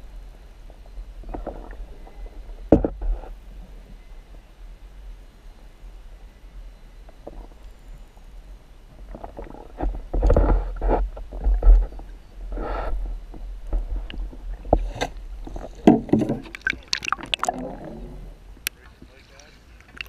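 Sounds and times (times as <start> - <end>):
muffled underwater thumps: 1.2 - 3.3, 9.1 - 19.1
underwater rumbling water rushing: 8.9 - 18.7.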